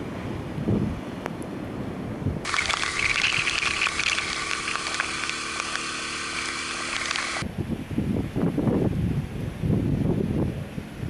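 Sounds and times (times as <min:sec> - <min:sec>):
wind on microphone: 0:00.0 - 0:05.2, 0:07.1 - 0:11.0
raindrops ticking on camera: 0:02.5 - 0:07.4
spray hissing from wet road: 0:02.5 - 0:07.4.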